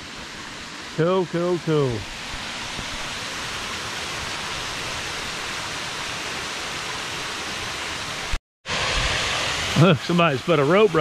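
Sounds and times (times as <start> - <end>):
waterfall rushing over rocks: 0.0 - 11.0.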